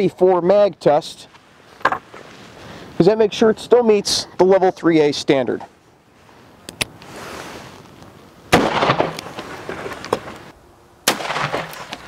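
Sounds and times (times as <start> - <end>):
gunshot with rumbling echo: 8.5 - 9.8, 11.0 - 12.0.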